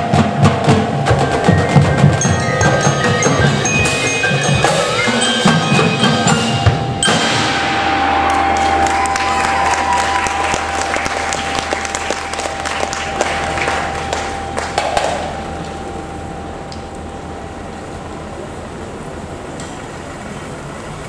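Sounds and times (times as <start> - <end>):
crowd applauding and cheering: 1.3 - 16.2
single held note: 6.3 - 17.3.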